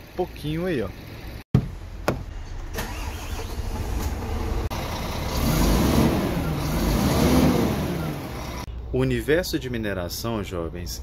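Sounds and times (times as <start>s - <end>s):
diesel truck engine revving: 2.4s - 8.7s.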